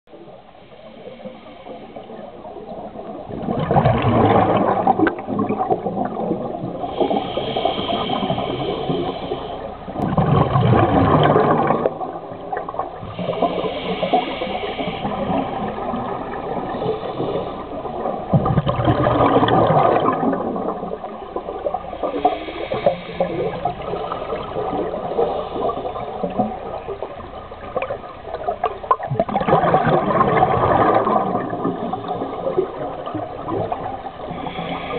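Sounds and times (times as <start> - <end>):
exhaled air bubbling: 0.1 - 34.9
regulator hiss on inhale: 0.6 - 2.6, 6.8 - 10.0, 13.0 - 18.1, 21.7 - 27.0, 34.1 - 34.9.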